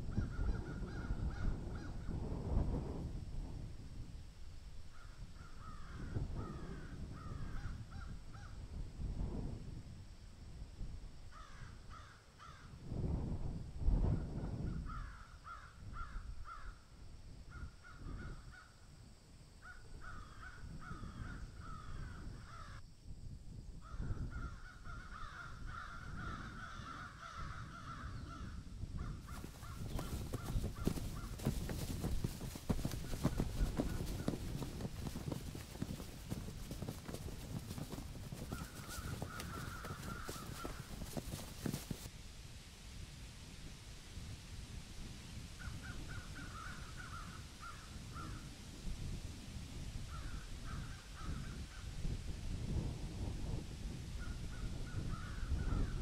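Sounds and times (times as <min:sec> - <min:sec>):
crows cawing: 0:24.4 - 0:34.5, 0:35.5 - 0:42.0
marching footsteps on dry leaves: 0:29.3 - 0:42.1.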